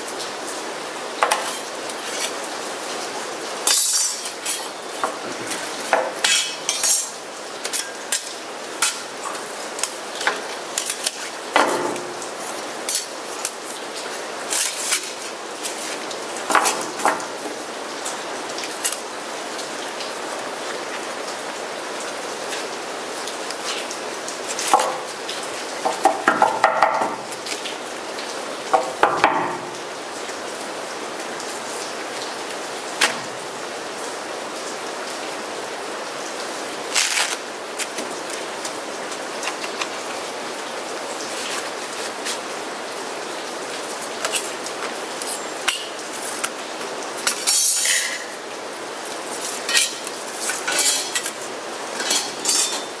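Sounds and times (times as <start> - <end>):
metal plates clinking and scraping: 3.6 - 9.4, 16.5 - 17.6, 47.2 - 48.4, 49.4 - 53.0.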